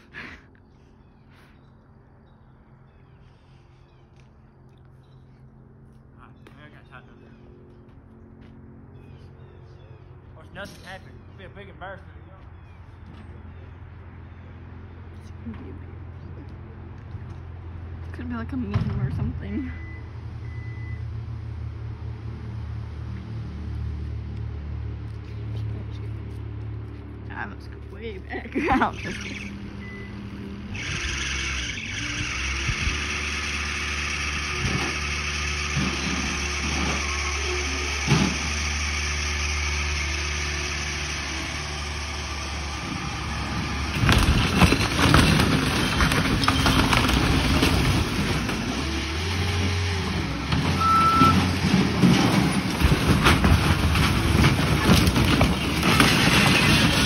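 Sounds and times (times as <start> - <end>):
skid steer engine running: 0.0 - 57.0
cracking and crunching: 43.8 - 49.6, 51.7 - 57.0.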